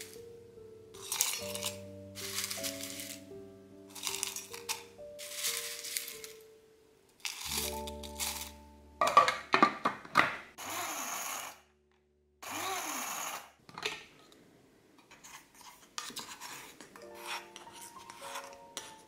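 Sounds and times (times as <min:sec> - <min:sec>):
wooden spoon scraping metal cup: 0:01.0 - 0:03.2, 0:03.9 - 0:06.3, 0:07.2 - 0:08.5, 0:15.1 - 0:19.0
grinder blades whirring: 0:10.6 - 0:11.6, 0:12.4 - 0:13.5.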